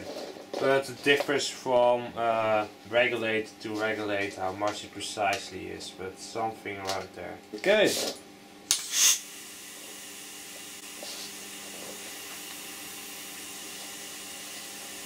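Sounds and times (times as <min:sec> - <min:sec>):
loud burst of air: 0:08.7 - 0:09.5
compressed air hissing: 0:08.7 - 0:10.0, 0:10.8 - 0:12.2.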